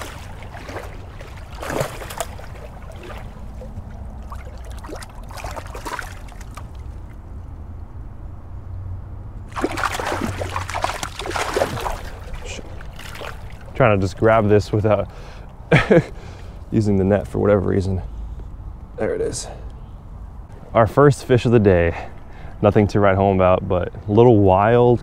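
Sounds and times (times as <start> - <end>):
water splashing: 0.0 - 7.2, 9.4 - 15.2
low steady rumble: 0.0 - 25.0.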